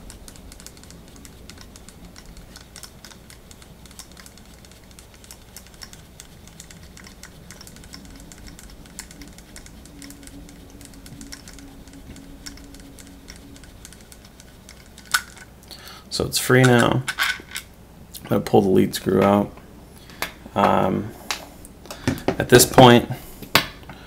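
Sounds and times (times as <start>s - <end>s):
metal handwheel clicking: 0.0s - 15.4s.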